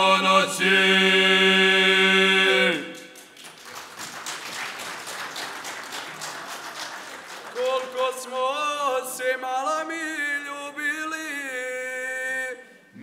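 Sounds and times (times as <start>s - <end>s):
men singing a cappella chord: 0.0s - 3.0s, 7.6s - 13.0s.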